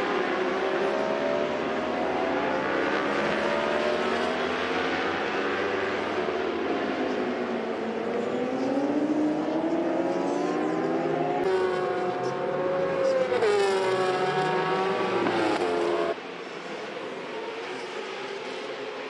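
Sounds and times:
racing motorcycle engines revving: 0.0s - 16.2s.

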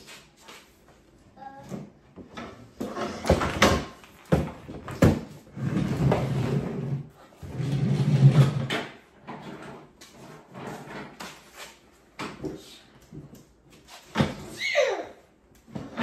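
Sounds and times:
table scraping: 2.3s - 3.8s, 5.0s - 11.9s.

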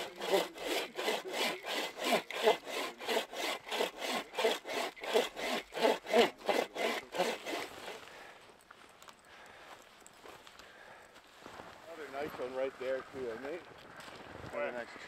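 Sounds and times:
hand saw cutting log: 0.0s - 8.0s.

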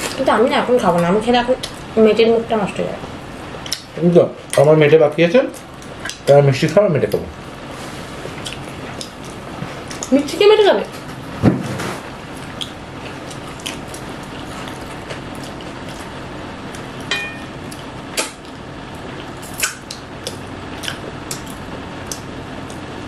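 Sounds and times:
steady background hum: 0.0s - 23.0s
chewing clicks: 3.6s - 3.9s, 5.5s - 7.2s, 8.4s - 10.2s, 12.5s - 16.1s, 16.7s - 22.9s
lip smacks: 3.6s - 3.9s, 8.4s - 10.1s, 19.4s - 22.8s.

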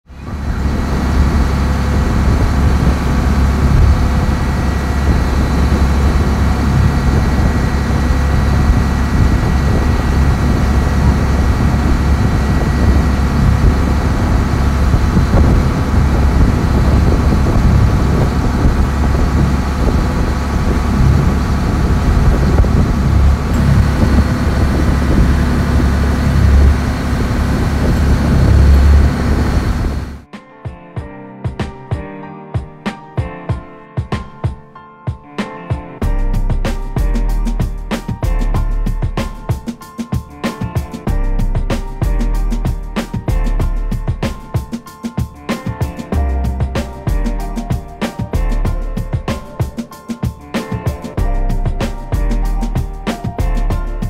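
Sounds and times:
boat engine running: 0.1s - 30.2s
wind: 0.1s - 30.2s
water rushing: 0.3s - 30.2s.

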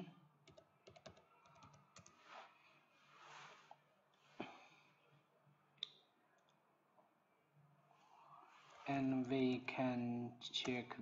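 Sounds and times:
faint breathing: 2.3s - 5.2s.

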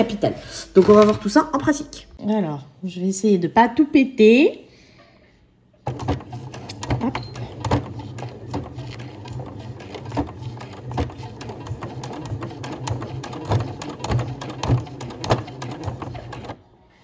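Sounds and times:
sewing machine clicks: 5.8s - 16.6s
sewing machine motor hum: 5.8s - 16.7s.

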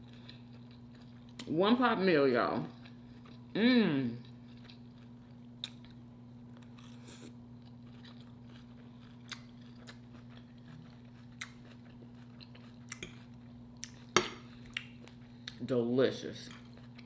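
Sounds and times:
steady low hum: 0.0s - 17.0s
chewing mouth sounds: 6.6s - 15.6s.

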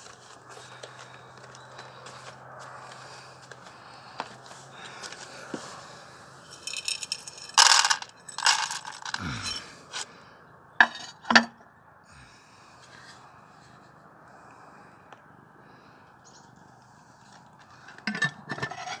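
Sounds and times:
dry kibble rattling: 6.4s - 9.6s
sharp clinks: 6.4s - 9.6s
plastic bowl scraping on concrete: 17.9s - 19.0s.

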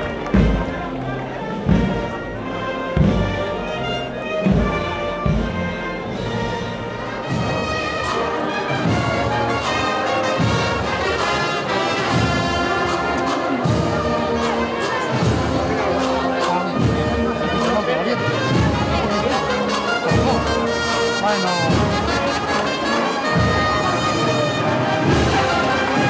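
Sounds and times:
heavy drum beats: 0.0s - 8.0s
brass band playing a march: 0.0s - 26.0s.

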